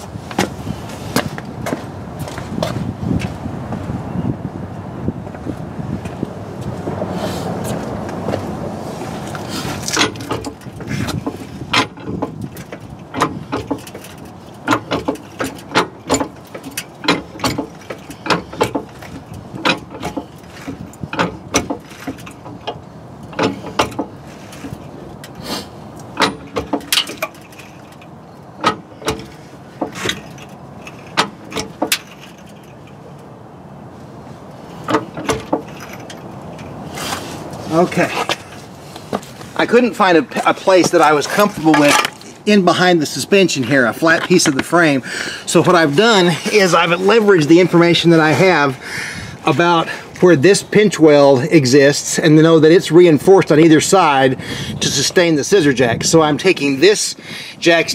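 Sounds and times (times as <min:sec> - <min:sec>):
floor jack clanking: 0:09.2 - 0:25.4, 0:26.1 - 0:33.0, 0:34.7 - 0:44.9.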